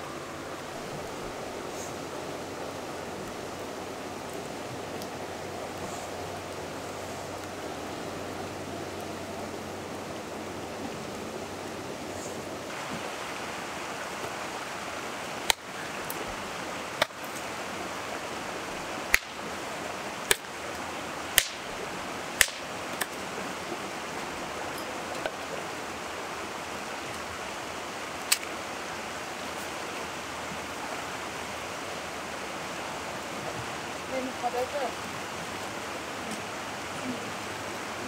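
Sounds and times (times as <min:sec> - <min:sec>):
river rushing: 0:00.0 - 0:38.0
campfire popping: 0:00.1 - 0:09.2, 0:19.0 - 0:25.4, 0:28.2 - 0:28.7.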